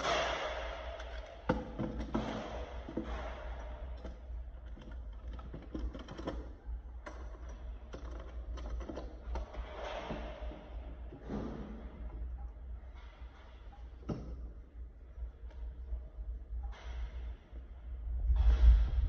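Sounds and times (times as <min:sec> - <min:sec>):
metal lock clicking and knocking: 0:00.9 - 0:12.4.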